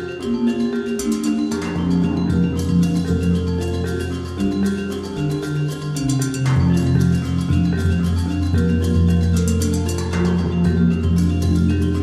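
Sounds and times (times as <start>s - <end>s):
held melodic notes: 0.0s - 12.0s.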